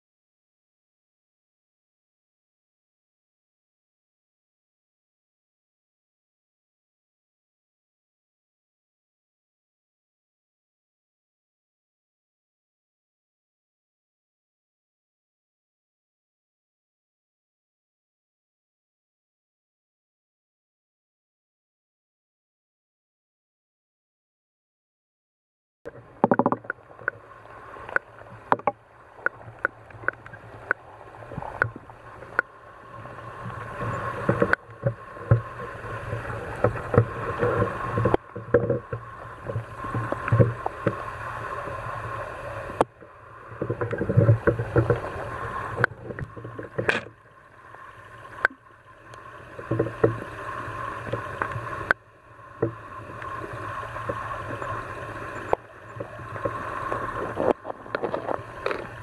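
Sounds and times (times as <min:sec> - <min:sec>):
sharp clicks and knocks: 0:25.9 - 0:27.2, 0:27.9 - 0:30.8
muffled underwater noise: 0:25.9 - 0:59.0.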